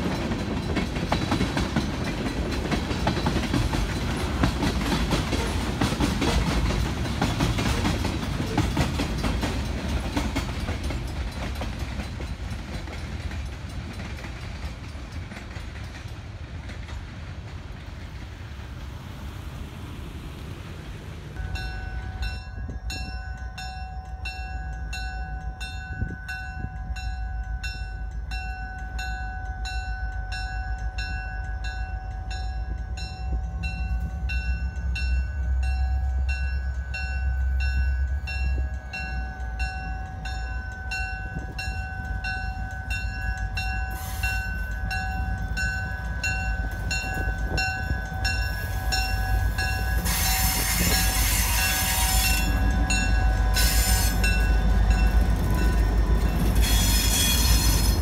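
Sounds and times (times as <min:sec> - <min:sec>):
crossing bell clanging: 0:00.0 - 0:17.1, 0:21.4 - 0:58.0
freight train rumbling: 0:00.0 - 0:58.0
broad hiss: 0:43.9 - 0:44.7.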